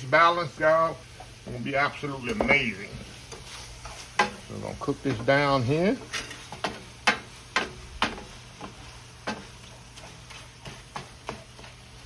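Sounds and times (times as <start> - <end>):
meat sizzling in a frying pan: 0.0 - 12.0
wooden spoon knocking on pan: 6.5 - 9.8, 10.6 - 11.8.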